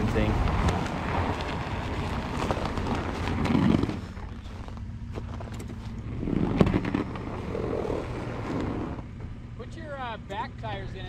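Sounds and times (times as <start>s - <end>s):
sharp clicks and crunches: 0.0s - 9.1s
car engine idling: 0.0s - 11.0s.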